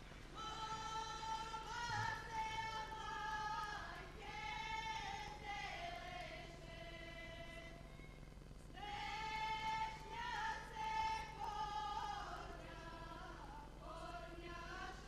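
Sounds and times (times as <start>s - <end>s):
women's choir singing: 0.4s - 7.8s, 8.8s - 15.0s.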